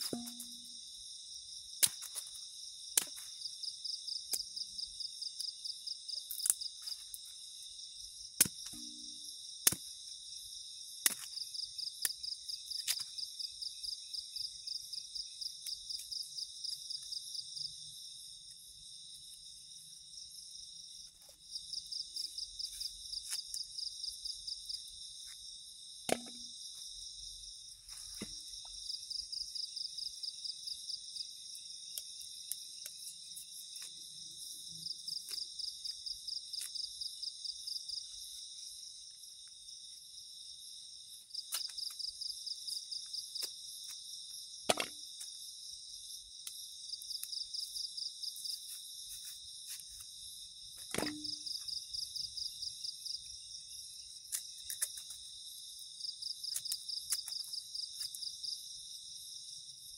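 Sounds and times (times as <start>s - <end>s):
night insects chirring: 0.0s - 59.9s
machete chopping roots: 9.7s - 9.9s.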